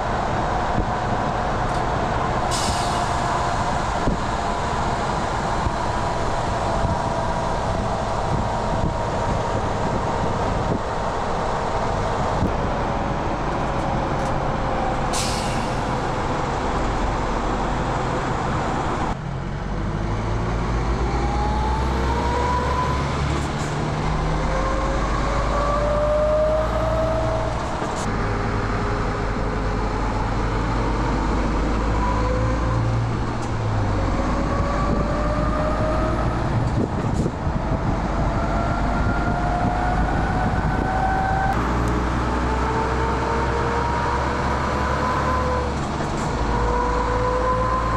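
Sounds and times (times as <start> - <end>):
truck diesel engine accelerating: 0.0 - 47.9
brief air hiss: 2.5 - 3.1, 15.1 - 15.8.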